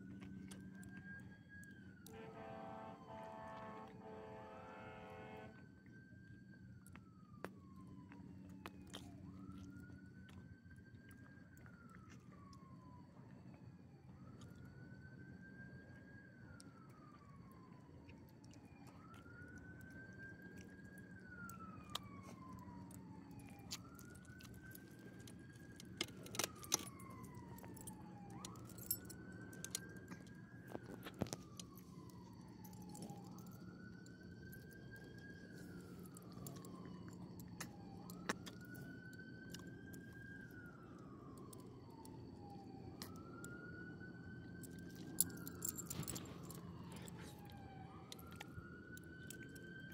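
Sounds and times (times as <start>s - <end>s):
emergency vehicle siren wailing: 0.0s - 49.9s
dog collar tags jingling: 44.9s - 47.3s.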